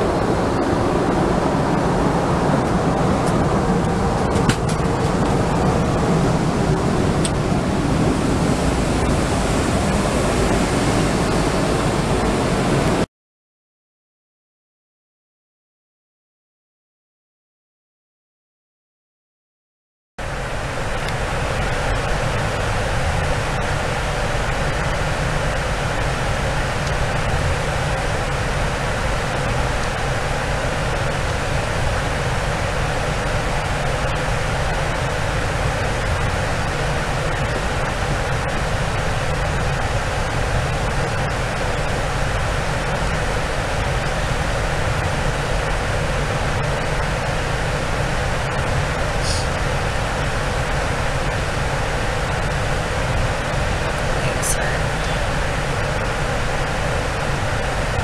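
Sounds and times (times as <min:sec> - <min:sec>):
airplane cabin noise: 0:00.0 - 0:13.1, 0:20.2 - 0:58.0
low rumble: 0:00.0 - 0:13.1.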